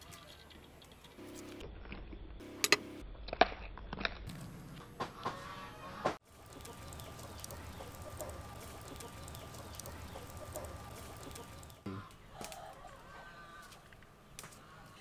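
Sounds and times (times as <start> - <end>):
low background noise: 4.3 - 15.0
chickens clucking: 5.1 - 13.7.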